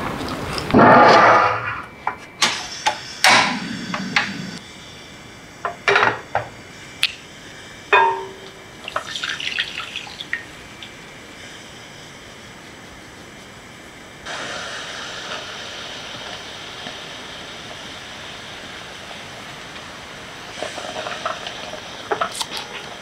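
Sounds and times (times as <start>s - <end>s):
ringing clank: 7.9s - 8.7s
water crackling in hot butter: 8.8s - 11.0s, 20.5s - 23.0s.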